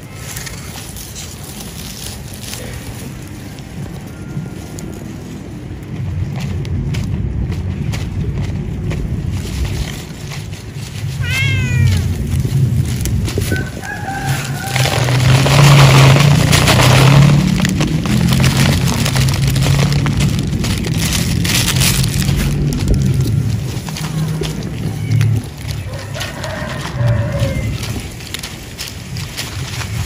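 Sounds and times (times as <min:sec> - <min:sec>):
steady low rumble: 0:00.0 - 0:30.0
cat meowing: 0:11.2 - 0:12.2.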